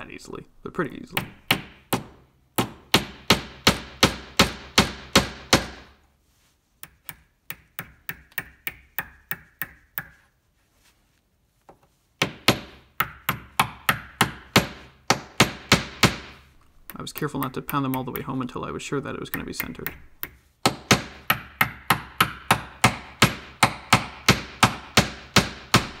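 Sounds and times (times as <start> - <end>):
hammer tapping a tack: 6.8 - 10.2, 12.2 - 18.5, 19.3 - 26.0.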